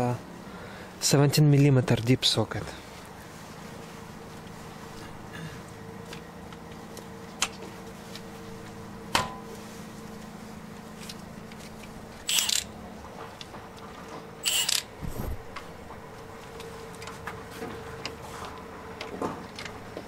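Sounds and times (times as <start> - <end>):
steady low hum: 0.0 - 20.0
sharp metal clicks: 12.3 - 12.7, 14.4 - 14.9
socket wrench ratchet clicking: 12.3 - 12.7, 14.4 - 14.9.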